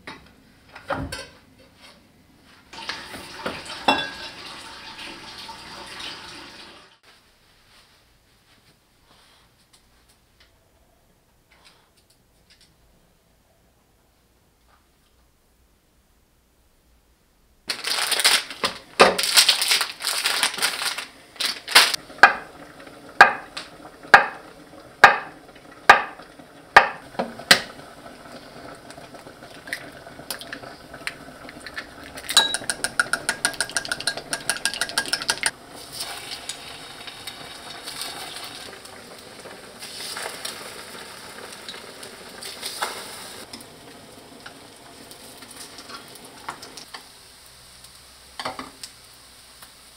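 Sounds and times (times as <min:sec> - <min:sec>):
kitchen clatter: 0:00.0 - 0:01.8, 0:02.8 - 0:04.6, 0:17.7 - 0:22.6, 0:23.2 - 0:26.2, 0:26.8 - 0:27.8, 0:31.6 - 0:36.6
sausage sizzling in a pan: 0:02.8 - 0:07.0, 0:17.7 - 0:49.9
knife knocking on cutting board: 0:26.8 - 0:27.0
egg beaten in glass bowl: 0:32.2 - 0:35.5.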